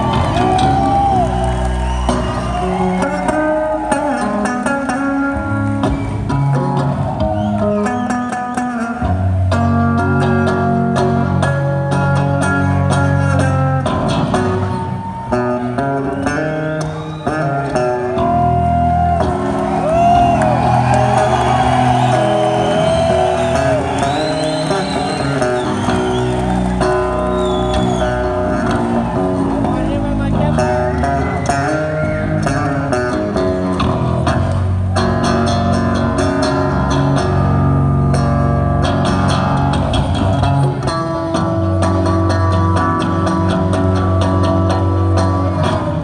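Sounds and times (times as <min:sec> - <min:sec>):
live rock band playing: 0:00.0 - 0:46.0
lead guitar pitch bends: 0:15.4 - 0:46.0.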